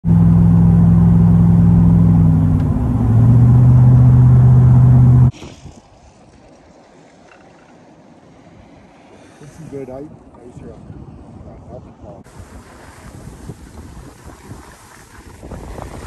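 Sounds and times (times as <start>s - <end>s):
car cabin engine and road drone: 0.0s - 5.3s.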